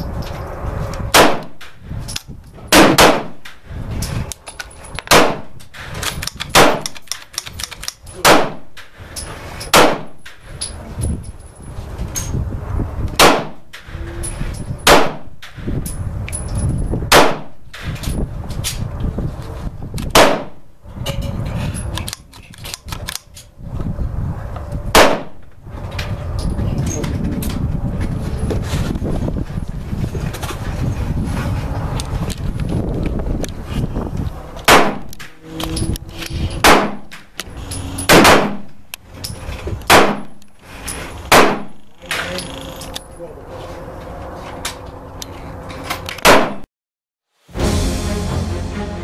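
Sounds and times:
gunshots: 0:01.1 - 0:01.6, 0:02.7 - 0:03.4, 0:05.1 - 0:05.5, 0:06.5 - 0:07.0, 0:08.2 - 0:08.7, 0:09.7 - 0:10.2, 0:13.2 - 0:13.6, 0:14.9 - 0:15.3, 0:17.1 - 0:17.6, 0:20.1 - 0:20.6, 0:24.9 - 0:25.4, 0:34.7 - 0:35.1, 0:36.6 - 0:37.1, 0:38.1 - 0:38.7, 0:41.3 - 0:41.8.

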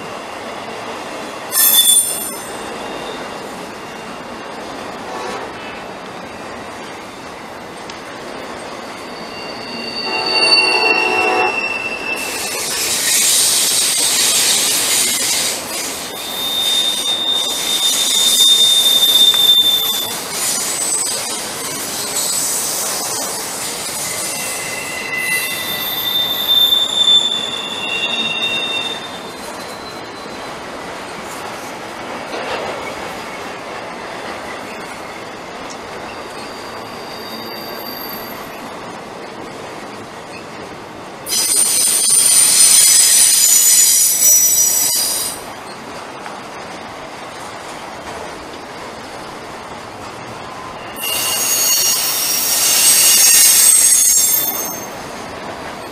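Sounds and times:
train wheels squealing: 0:00.0 - 0:05.4, 0:08.4 - 0:31.2, 0:32.5 - 0:38.8, 0:41.3 - 0:45.8, 0:50.2 - 0:55.9
freight train rumbling: 0:00.0 - 0:55.9.

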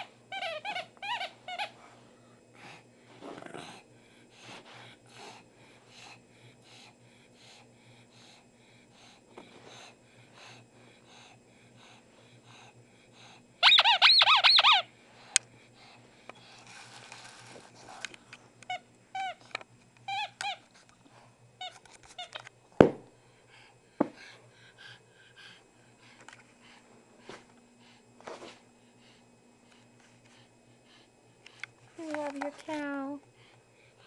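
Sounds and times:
rubber squeaky toy squeaking: 0:00.3 - 0:01.8, 0:13.6 - 0:14.8.

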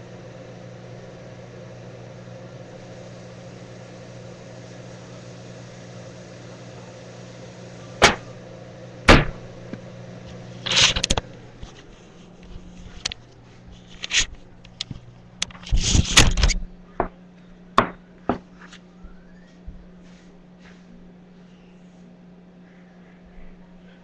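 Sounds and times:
low electrical hum: 0:00.0 - 0:24.0
sharp knocks: 0:08.0 - 0:08.3, 0:09.1 - 0:09.5, 0:17.8 - 0:18.5.

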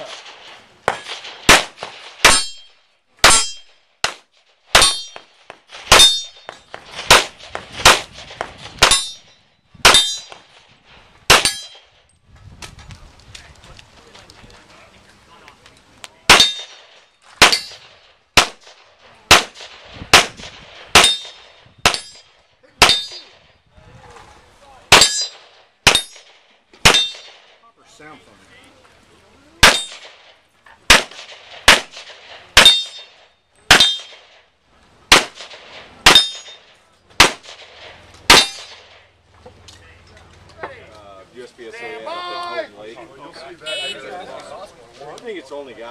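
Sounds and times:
handgun shots: 0:16.3 - 0:16.8, 0:38.3 - 0:39.0.

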